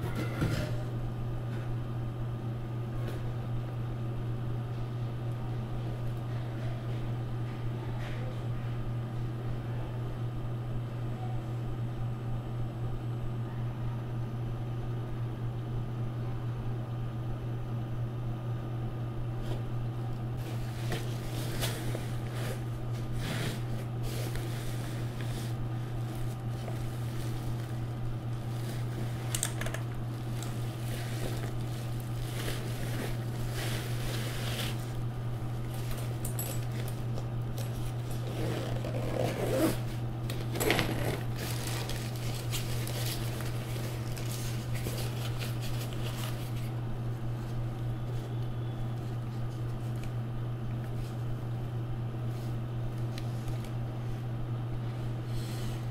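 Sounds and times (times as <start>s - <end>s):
steady low hum: 0.0s - 55.9s
packaging rustling and scraping: 20.4s - 46.8s.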